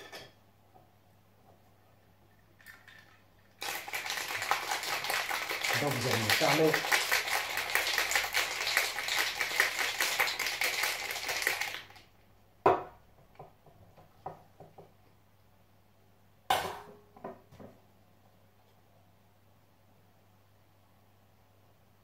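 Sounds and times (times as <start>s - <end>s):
ice rattling in cocktail shaker: 2.6s - 12.1s.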